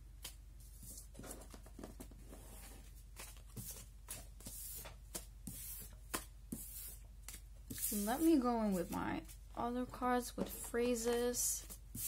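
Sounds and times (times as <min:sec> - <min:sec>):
paper cards rustling and sliding: 0:00.2 - 0:09.5.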